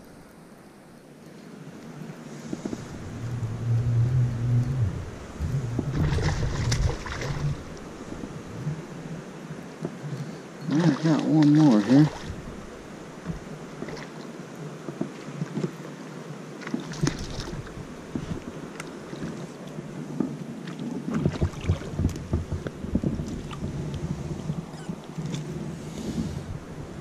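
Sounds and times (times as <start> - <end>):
low wind rumble: 0.0 - 27.0
soft knocks and rustles: 21.2 - 25.5.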